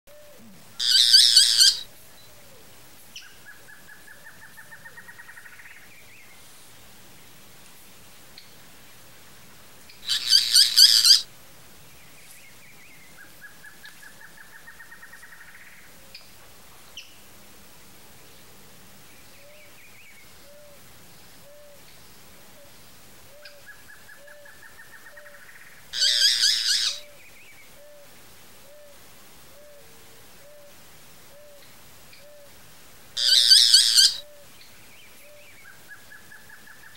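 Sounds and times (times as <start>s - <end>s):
bird chattering notes: 0.8s - 1.8s, 10.1s - 11.2s, 33.2s - 34.2s
harsh rattling bird call: 0.8s - 1.9s, 10.0s - 11.3s, 24.2s - 27.2s, 33.2s - 34.4s.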